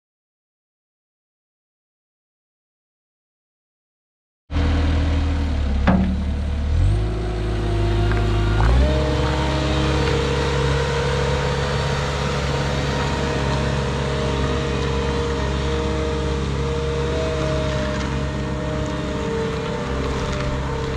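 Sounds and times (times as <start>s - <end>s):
diesel engine running: 4.5s - 20.9s.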